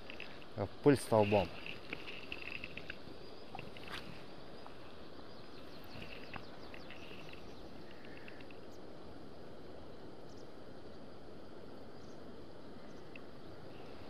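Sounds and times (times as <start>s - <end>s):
small birds chirping: 0.0s - 8.9s
outdoor background noise: 0.0s - 14.0s.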